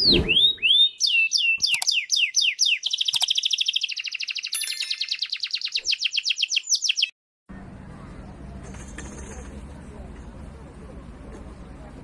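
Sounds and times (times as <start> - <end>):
canary singing: 0.0 - 7.1.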